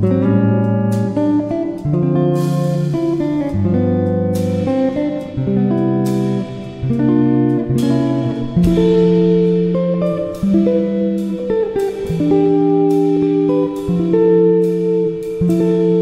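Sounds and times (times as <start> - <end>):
plucked instrumental music: 0.0 - 16.0.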